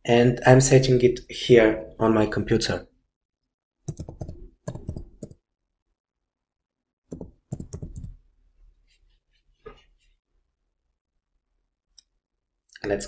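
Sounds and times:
computer keyboard typing: 3.8 - 5.4, 7.1 - 8.2.

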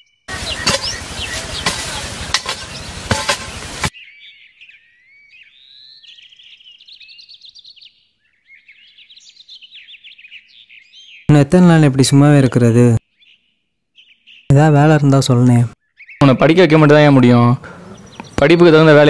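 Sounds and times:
birds chirping: 0.0 - 19.0
hoe chopping into soil: 0.4 - 3.9.

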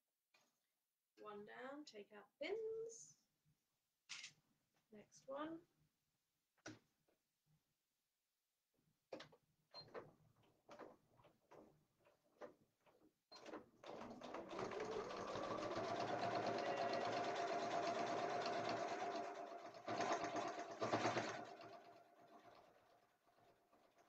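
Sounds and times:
sewing machine running: 13.8 - 24.0.

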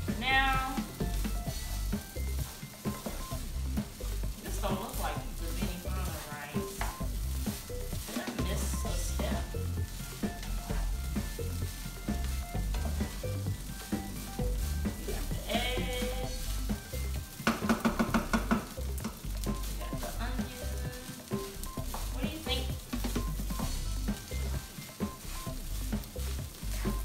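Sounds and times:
background music: 0.0 - 27.0
fried rice sizzling in a frying pan: 0.0 - 27.0
wooden spatula scraping a pan: 0.0 - 27.0
spatula knocking against pan: 17.4 - 19.2.

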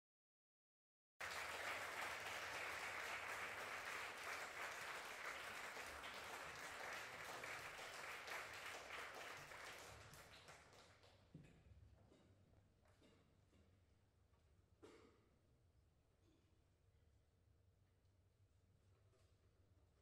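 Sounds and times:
audience applauding: 1.2 - 11.1.

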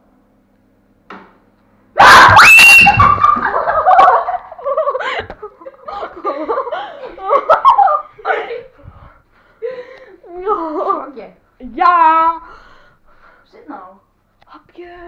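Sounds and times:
boy screaming in fright: 2.0 - 3.2
boy laughing and talking: 3.2 - 8.9, 10.2 - 11.3.

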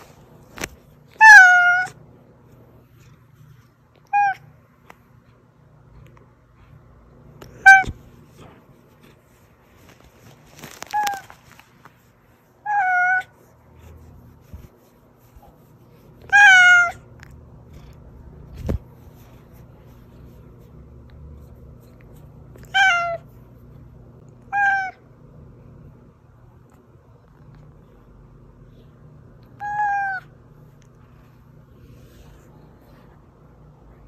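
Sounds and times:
cat meowing: 1.1 - 2.0, 7.5 - 8.0, 12.6 - 13.3, 16.3 - 17.1, 22.6 - 23.2, 24.5 - 25.0, 29.6 - 30.3.

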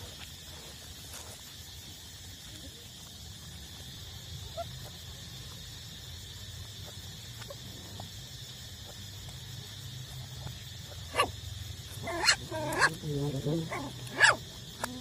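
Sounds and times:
puppies squeaking: 12.0 - 13.0, 13.7 - 15.0.

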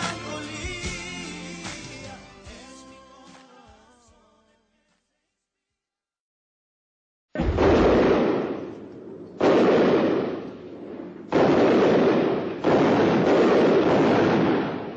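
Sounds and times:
loud explosion blasts: 7.4 - 14.9.

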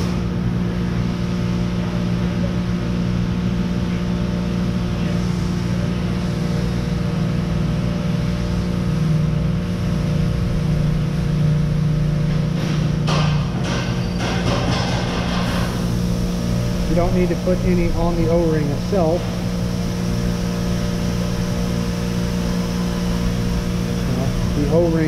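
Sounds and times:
low machine hum: 0.0 - 25.0
lower droning tone: 15.5 - 25.0.

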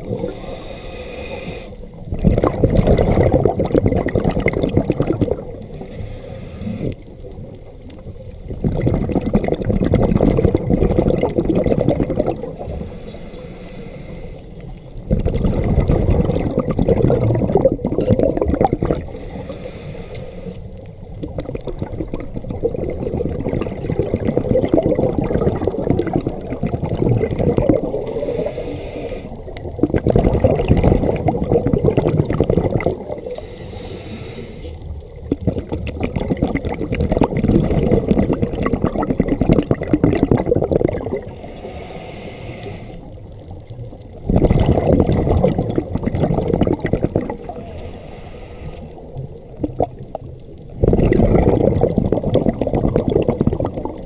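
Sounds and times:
regulator breath hiss: 0.1 - 1.9, 5.6 - 7.0, 12.5 - 15.0, 19.0 - 20.7, 28.0 - 29.5, 33.2 - 34.8, 41.2 - 43.2, 47.5 - 49.1
exhaust bubbles rushing: 2.1 - 5.6, 8.5 - 12.6, 15.1 - 19.0, 21.2 - 28.2, 29.5 - 33.2, 35.2 - 41.3, 44.2 - 47.6, 49.6 - 54.0.

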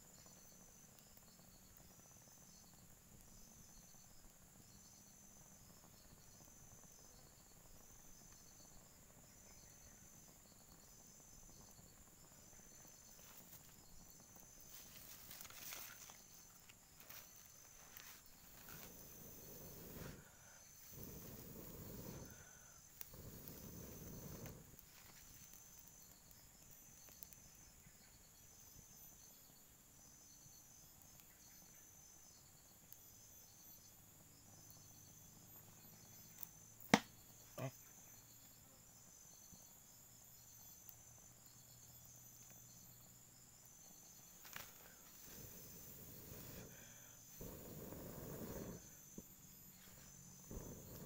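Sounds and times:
insects chirping: 0.0 - 51.0
sharp cracks: 36.9 - 37.1.

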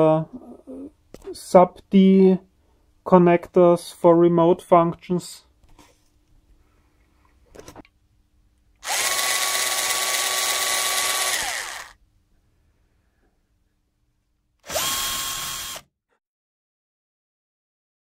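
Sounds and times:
cordless screwdriver whirring: 8.8 - 12.0, 14.6 - 15.9.

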